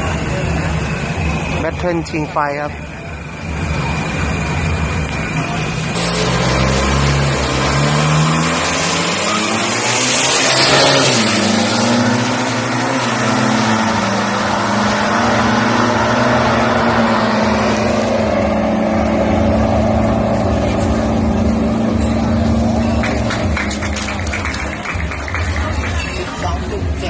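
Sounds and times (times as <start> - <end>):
suv engines and turbos surging: 0.0 - 27.0.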